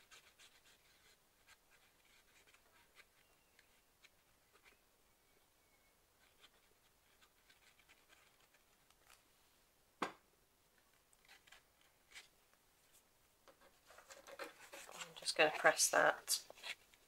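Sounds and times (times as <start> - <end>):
glue nozzle scratching on paper: 0.0 - 4.8, 6.2 - 9.2, 11.2 - 12.3, 13.9 - 16.9.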